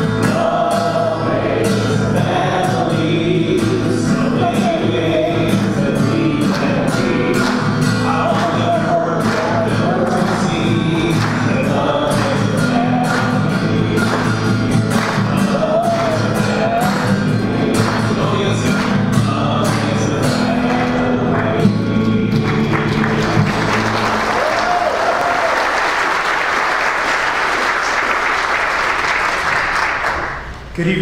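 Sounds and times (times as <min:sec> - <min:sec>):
song with sung melody: 0:00.0 - 0:23.4
congregation clapping along: 0:00.0 - 0:30.7
applause: 0:07.4 - 0:11.6, 0:12.2 - 0:16.3, 0:20.6 - 0:30.6.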